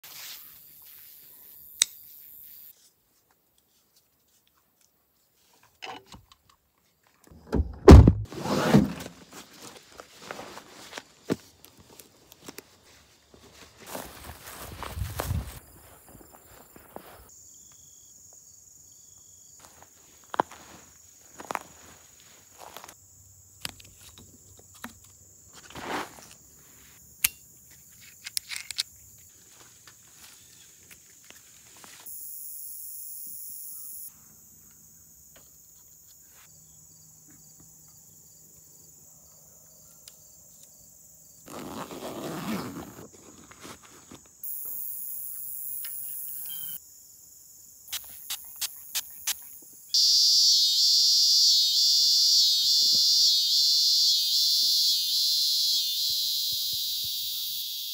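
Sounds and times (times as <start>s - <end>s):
carabiner clicks: 27.2s - 29.0s
buckle click: 28.2s - 28.9s
strap and rope rustling: 41.5s - 44.2s.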